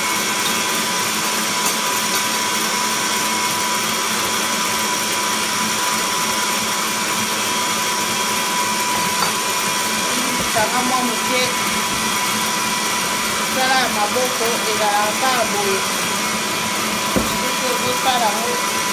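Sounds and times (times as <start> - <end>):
stand mixer whisking: 0.0 - 18.9.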